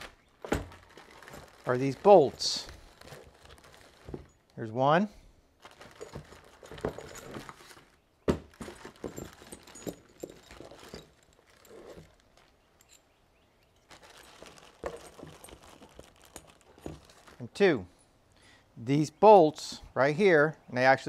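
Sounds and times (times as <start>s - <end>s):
rustling of plastic bag: 0.0s - 4.5s, 5.6s - 13.0s, 13.8s - 17.4s.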